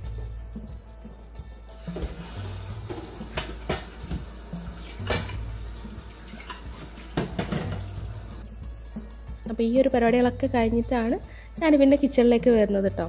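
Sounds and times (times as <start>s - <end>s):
background music with bass line: 0.0s - 13.0s
tap water running into sink: 1.8s - 8.4s
metal cookware clinking: 4.8s - 8.2s.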